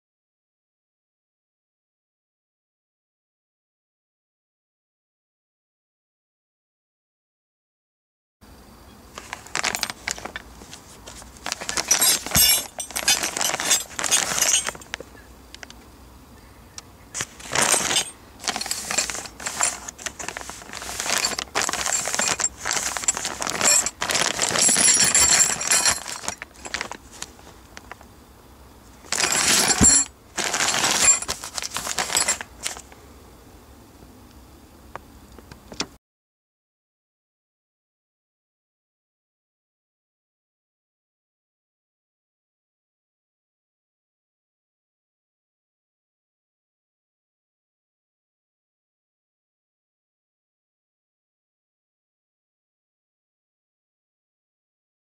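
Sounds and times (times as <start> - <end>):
metal parts clinking: 9.2 - 15.0, 17.2 - 28.0, 29.0 - 32.9
plastic packaging crinkling: 9.2 - 15.0, 17.2 - 28.0, 29.0 - 32.9.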